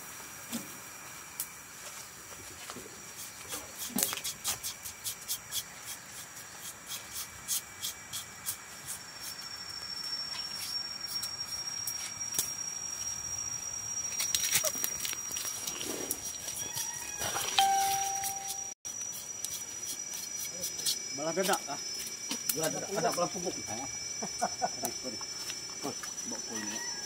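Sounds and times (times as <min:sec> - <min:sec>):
hiss: 0:00.0 - 0:17.5
steady high whine: 0:07.3 - 0:16.6, 0:17.4 - 0:27.0.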